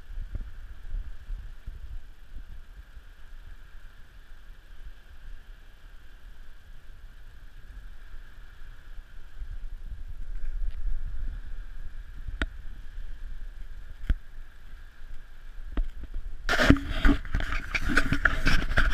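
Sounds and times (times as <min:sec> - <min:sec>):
wind buffeting microphone: 0:00.0 - 0:03.6, 0:07.4 - 0:14.6, 0:15.5 - 0:18.9
steady high-pitched hiss: 0:00.0 - 0:18.9.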